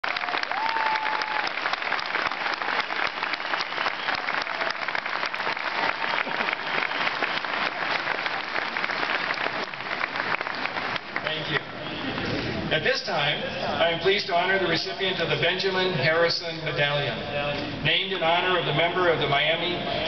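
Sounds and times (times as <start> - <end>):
crowd applauding: 0.0 - 11.7.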